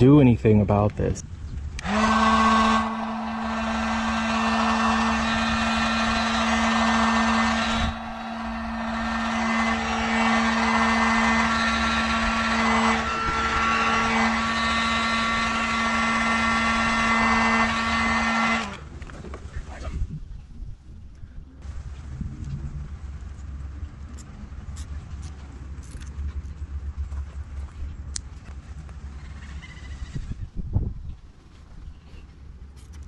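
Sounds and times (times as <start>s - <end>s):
heat gun fan humming: 1.7s - 18.9s.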